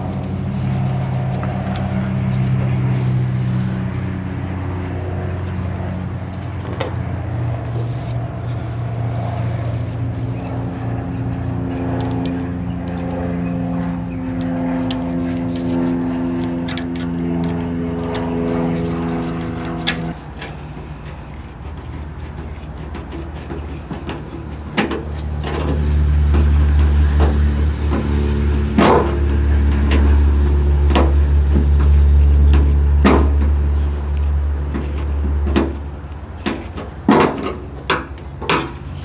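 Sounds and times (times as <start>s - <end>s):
motor drone: 0.0s - 37.0s
deep loud hum: 0.0s - 39.0s
screwdriver metallic clicks: 16.4s - 18.3s.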